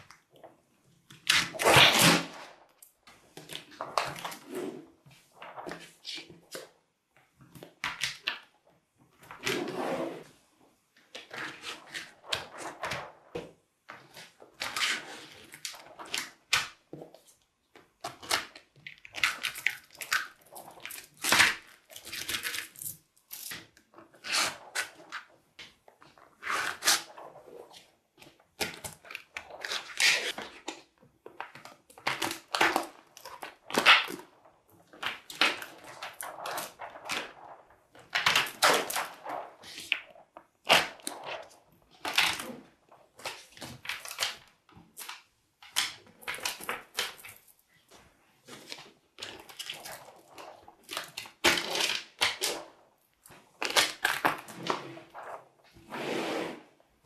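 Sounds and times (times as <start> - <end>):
plastic sheet sliding: 9.4 - 10.4, 53.7 - 57.0.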